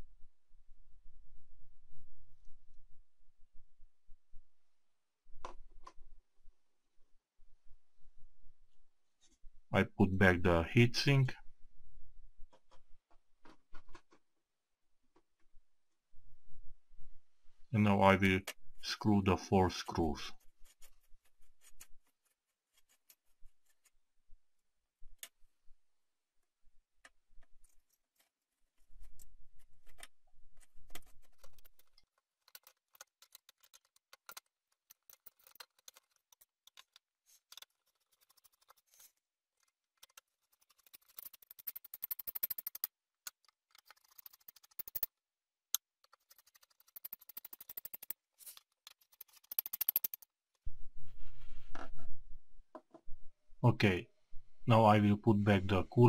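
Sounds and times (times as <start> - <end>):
screwdriver clicks and scrapes: 29.0 - 45.1, 45.8 - 50.3.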